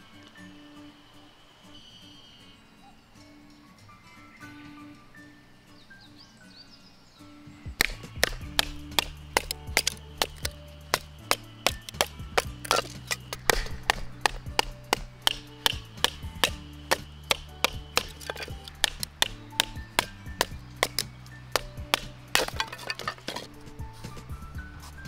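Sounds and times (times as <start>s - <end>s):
baton striking knife through wood: 7.8s - 23.6s.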